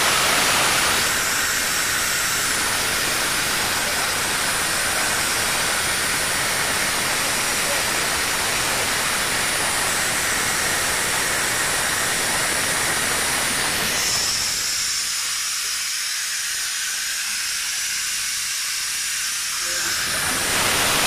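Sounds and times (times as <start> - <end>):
chiller hissing rush: 0.0 - 21.0.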